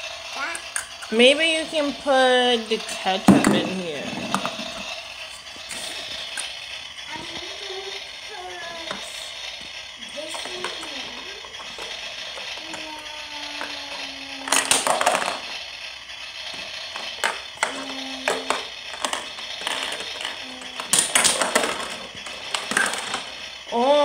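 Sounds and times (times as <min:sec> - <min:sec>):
plastic toys rattling and clattering: 0:00.0 - 0:24.0.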